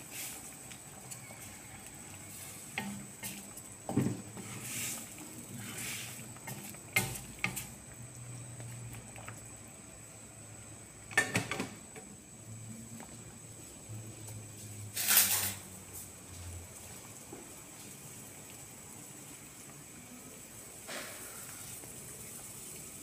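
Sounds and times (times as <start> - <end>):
liquid swishing in a wok: 0.0 - 10.7.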